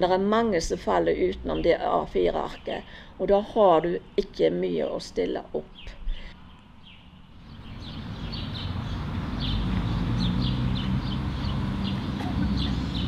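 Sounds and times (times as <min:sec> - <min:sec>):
small birds chirping: 0:03.9 - 0:13.0
low steady rumble: 0:07.3 - 0:13.0.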